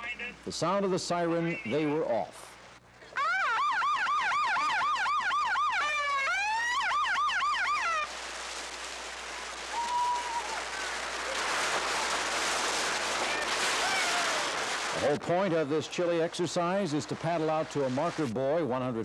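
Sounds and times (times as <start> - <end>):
siren yelping and wailing: 3.2 - 8.1
surf and splashing: 4.0 - 19.0.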